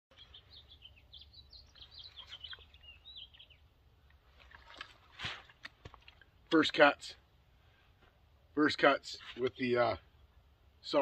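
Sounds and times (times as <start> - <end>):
faint songbird chirping: 0.1 - 4.8.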